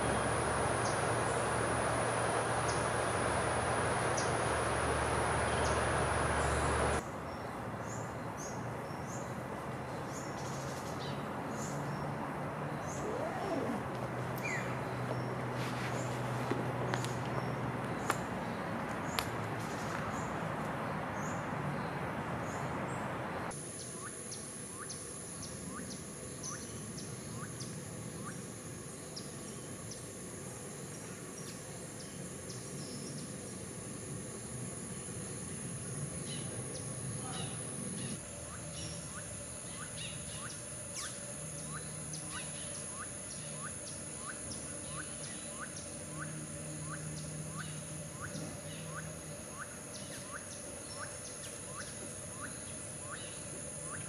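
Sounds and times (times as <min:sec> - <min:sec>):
high-pitched insect drone: 0:00.0 - 0:07.0, 0:33.1 - 0:54.0
short chirping call: 0:12.8 - 0:15.0.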